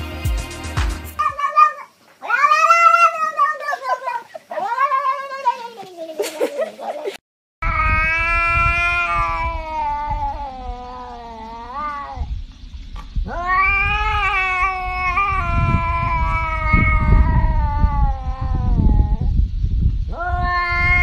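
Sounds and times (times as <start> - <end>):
cat yowling: 1.2 - 5.8, 7.6 - 12.3, 13.2 - 19.3, 20.1 - 21.0.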